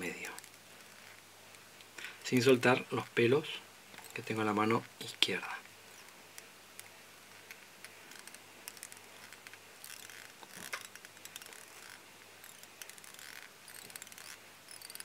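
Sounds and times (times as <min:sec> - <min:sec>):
thread scratching and rasping: 0:00.0 - 0:01.7, 0:02.3 - 0:05.2, 0:05.8 - 0:15.0.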